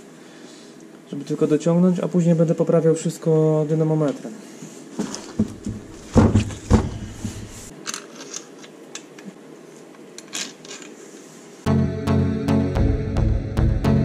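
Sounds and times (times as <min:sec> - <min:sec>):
metal clunks on workbench: 0:05.4 - 0:07.4
music: 0:11.7 - 0:14.0.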